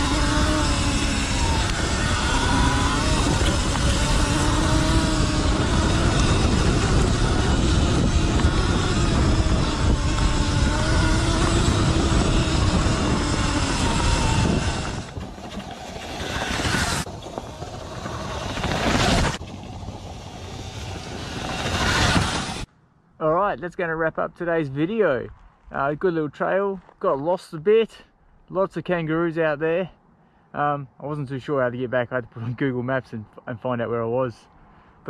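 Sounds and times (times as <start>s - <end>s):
electric motor whining: 0.0s - 22.7s
wind noise: 0.0s - 22.7s.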